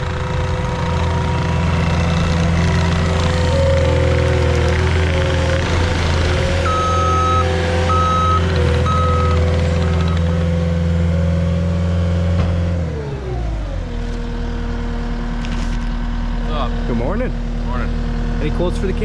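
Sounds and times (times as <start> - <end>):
diesel engine running: 0.0 - 19.0
backup alarm beeping: 6.6 - 10.2.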